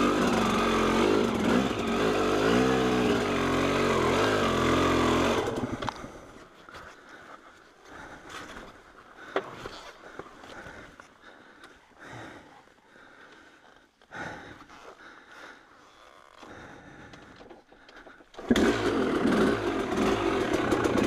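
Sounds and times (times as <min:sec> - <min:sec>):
person breathing hard: 0:05.9 - 0:18.5.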